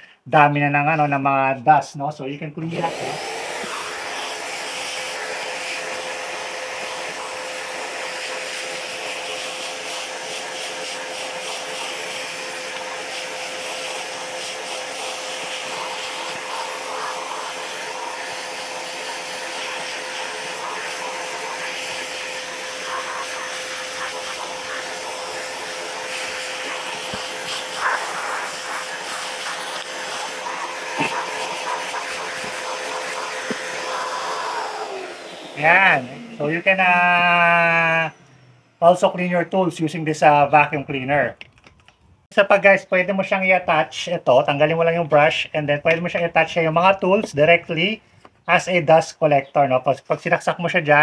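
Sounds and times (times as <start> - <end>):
shop vacuum running: 2.6 - 40.1.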